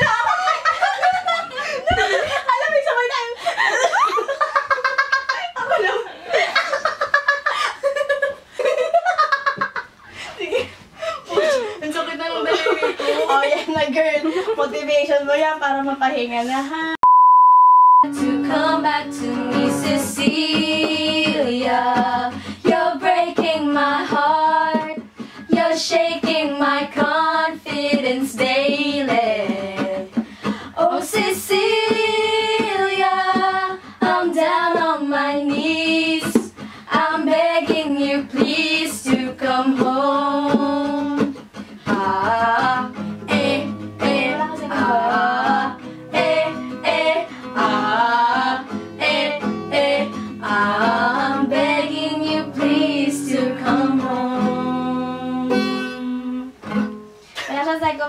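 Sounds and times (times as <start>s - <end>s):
acoustic guitar: 9.3s - 58.0s
women singing together: 18.0s - 56.6s
strummed ukulele: 18.1s - 30.5s.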